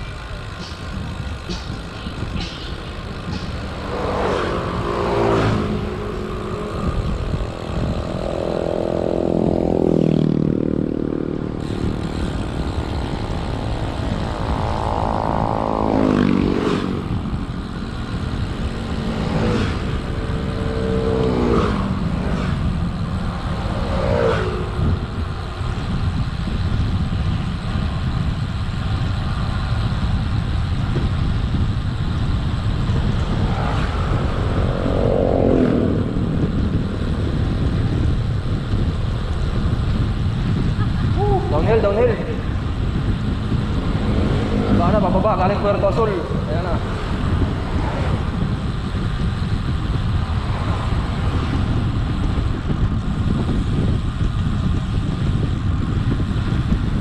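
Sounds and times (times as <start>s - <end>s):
vehicles passing by: 0.0s - 57.0s
wind rumble on microphone: 0.0s - 57.0s.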